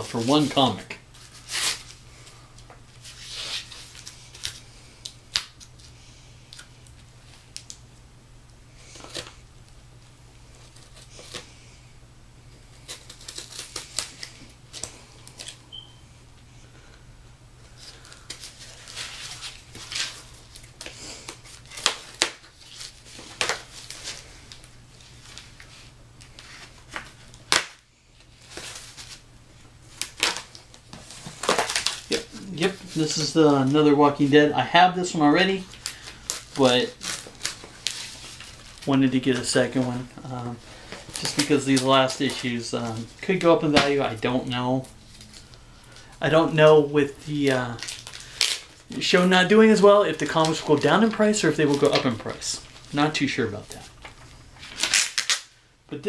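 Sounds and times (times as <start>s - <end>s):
tape and cardboard crinkling: 0.0s - 2.0s, 2.6s - 5.9s, 12.8s - 15.7s, 17.8s - 29.2s, 29.9s - 34.4s, 35.4s - 55.6s
packing tape ripping: 1.2s - 2.0s, 12.8s - 15.6s, 17.8s - 24.7s, 26.3s - 27.8s, 29.9s - 33.3s, 35.6s - 38.8s, 47.5s - 49.3s, 54.0s - 55.6s.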